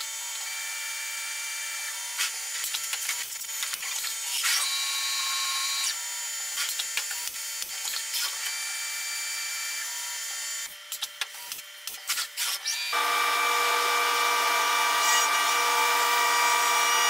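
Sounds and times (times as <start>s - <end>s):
high-pitched spindle whine: 4.3s - 6.0s, 12.7s - 17.0s.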